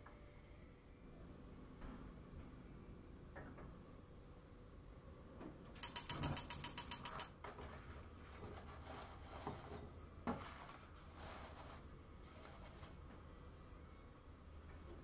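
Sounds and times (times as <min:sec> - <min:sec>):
gas stove igniter clicking: 0:05.8 - 0:07.3.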